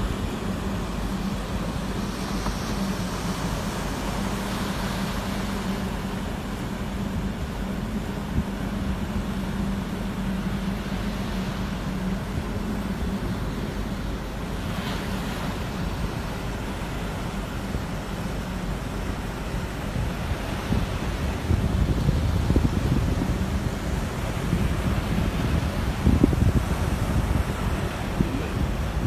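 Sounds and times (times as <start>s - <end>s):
heavy surf breaking: 0.0s - 29.0s
steady low hum: 0.0s - 29.0s
wind buffeting microphone: 15.5s - 29.0s.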